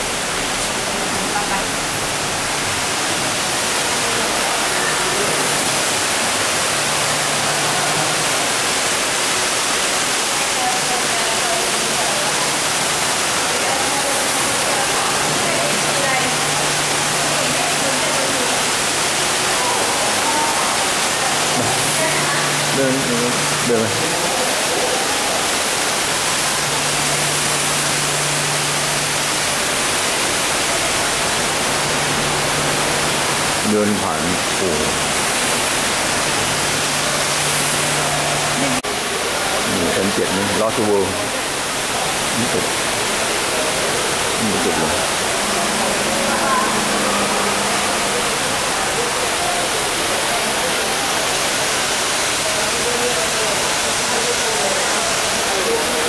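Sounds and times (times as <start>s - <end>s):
indoor waterfall rushing: 0.0s - 56.0s
low steady hum: 41.4s - 50.5s.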